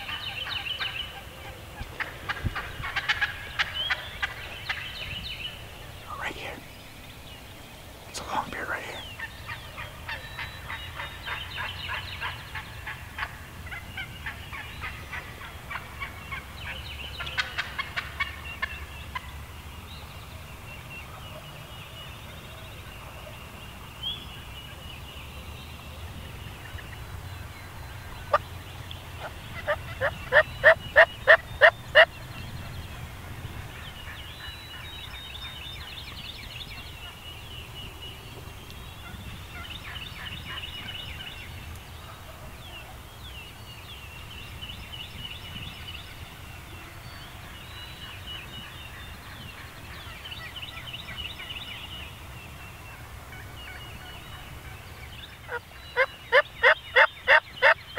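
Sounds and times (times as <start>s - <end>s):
wild turkeys clucking: 0.0s - 5.1s, 9.2s - 16.5s, 17.1s - 19.3s, 28.0s - 32.1s, 55.5s - 57.8s.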